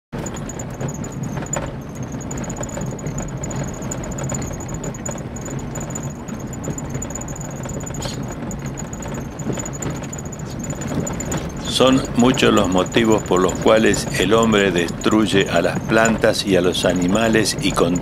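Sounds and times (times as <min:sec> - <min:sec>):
vehicle engine running: 0:00.1 - 0:18.0.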